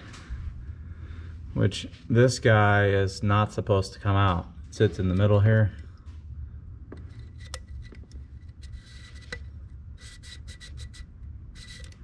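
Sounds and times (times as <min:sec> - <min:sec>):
metal spring rubbing scrapes: 0:07.1 - 0:12.0.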